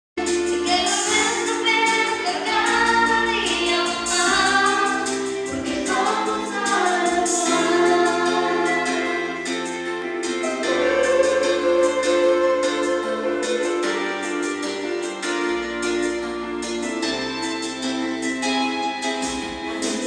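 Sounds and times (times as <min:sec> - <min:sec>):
musical accompaniment: 0:00.2 - 0:20.0
woman singing through loudspeaker: 0:00.6 - 0:09.5, 0:10.6 - 0:13.9.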